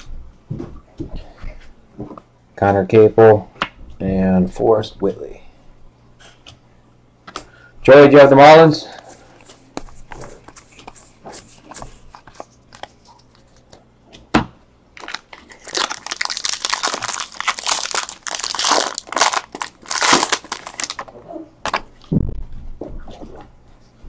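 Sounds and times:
foil wrapper crinkling and tearing: 15.0s - 21.1s.

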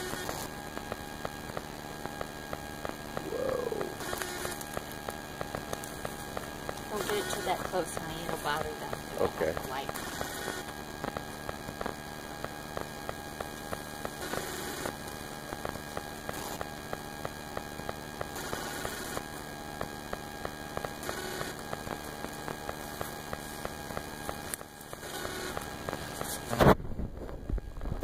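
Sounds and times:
bee swarm buzzing: 2.8s - 10.8s.

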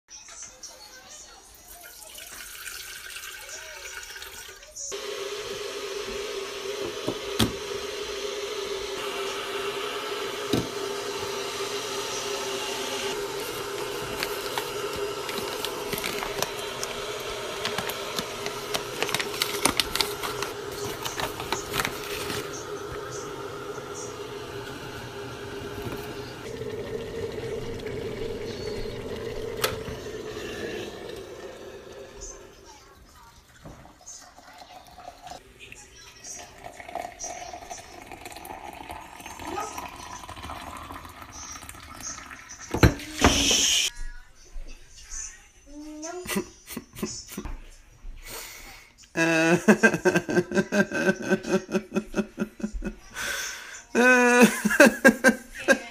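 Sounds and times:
water pouring into kettle: 1.6s - 43.9s, 53.4s - 55.9s
kettle hiss: 4.9s - 33.0s, 36.4s - 43.9s
low hum: 10.3s - 32.5s.

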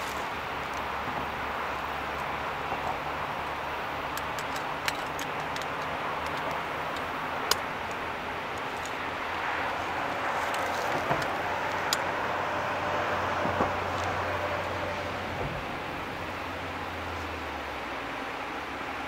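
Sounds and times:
freight train wheels on rail: 0.0s - 18.2s
sharp clicks: 4.1s - 9.1s.

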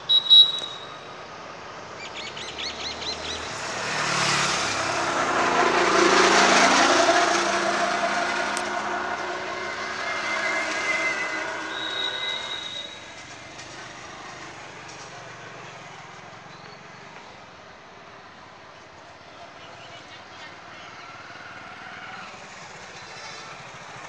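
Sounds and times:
sharp high-pitched tones: 0.0s - 1.1s
vehicle passing: 1.8s - 14.7s.

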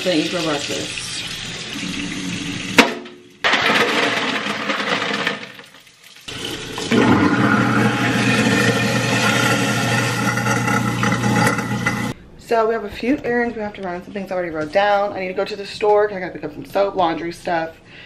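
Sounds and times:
water running from faucet into sink: 0.0s - 3.4s, 5.1s - 12.2s.

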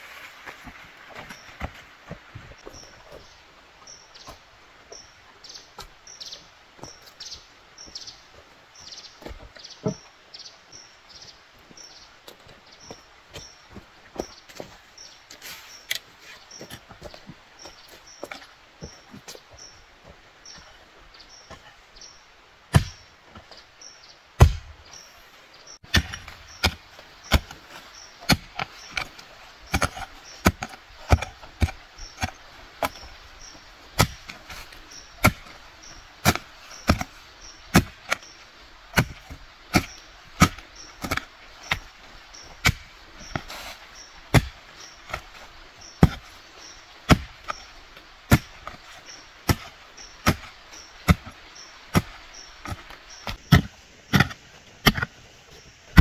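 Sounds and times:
hoe chopping into damp soil: 22.7s - 23.0s, 24.4s - 24.8s, 25.8s - 33.1s, 33.9s - 46.4s, 47.0s - 47.7s, 48.3s - 55.1s.

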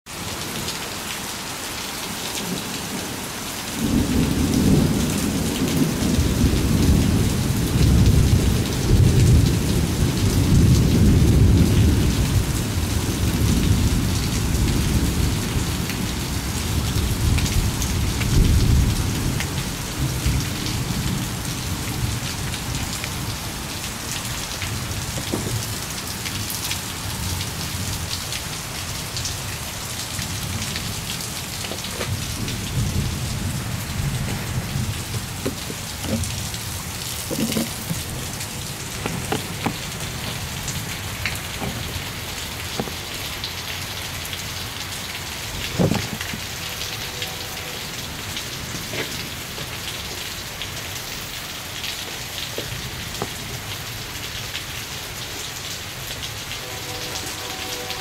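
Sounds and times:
steady rain: 0.1s - 58.0s
rolling thunder: 30.4s - 43.4s.

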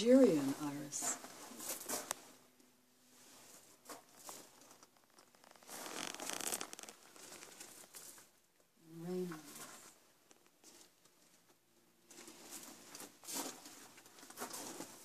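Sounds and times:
soft rustling and scuffing: 1.0s - 2.4s.

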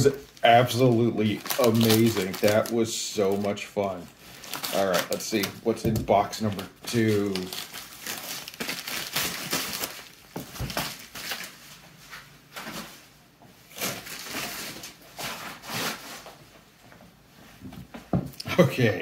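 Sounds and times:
packaging rustling and crinkling: 0.0s - 13.0s, 13.7s - 16.4s.

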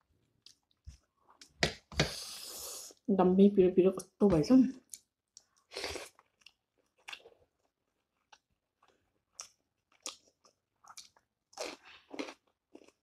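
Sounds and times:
chewing and crunching food: 0.2s - 1.5s, 4.9s - 13.0s.

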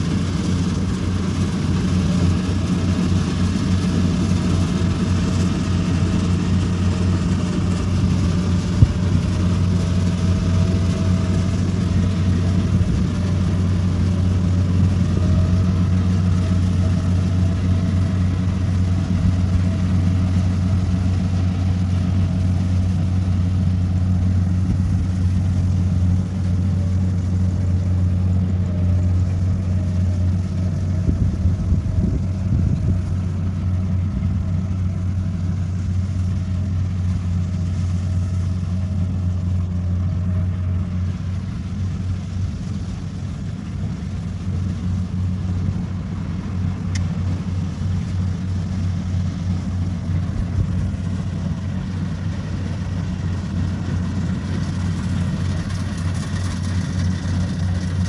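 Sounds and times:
combine harvester engine humming: 0.0s - 58.0s.

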